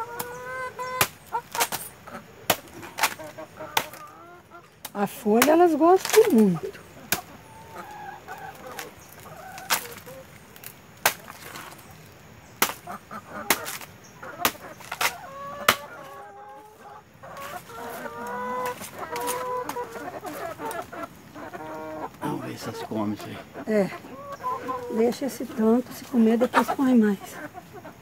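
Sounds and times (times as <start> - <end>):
hens clucking: 0.0 - 28.0
knife chopping plant trunk: 2.5 - 3.2, 11.0 - 11.7, 12.6 - 12.9, 13.5 - 15.9.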